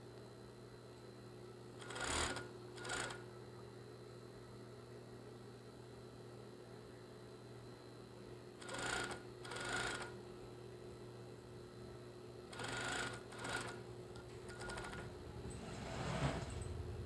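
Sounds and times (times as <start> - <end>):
sewing machine stitching: 1.8 - 3.2, 8.6 - 10.1, 12.6 - 13.8, 14.5 - 16.7
motor hum: 1.8 - 3.3, 8.6 - 17.0.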